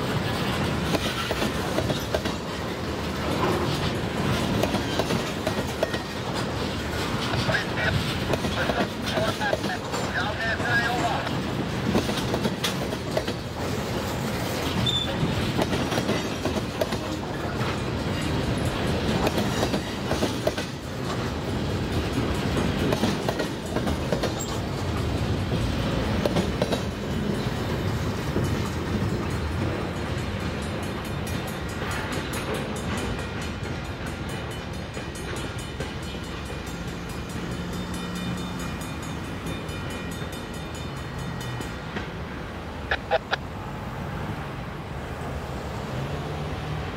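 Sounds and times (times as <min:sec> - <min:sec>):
wheels clacking over rail joints: 0:00.0 - 0:43.5
freight train rolling past: 0:00.0 - 0:46.9.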